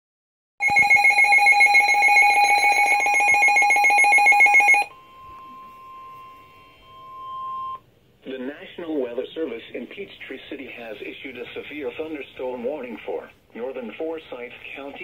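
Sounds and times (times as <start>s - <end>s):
rapid electronic alarm beeps: 0.6s - 7.8s
steady warning tone: 0.6s - 7.9s.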